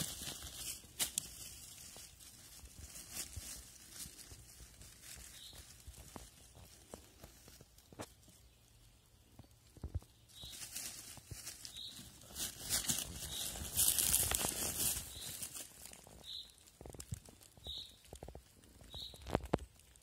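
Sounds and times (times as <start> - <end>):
twigs snapping: 0.0 - 2.2, 12.2 - 20.0
dry leaves rustling and crackling: 0.0 - 20.0.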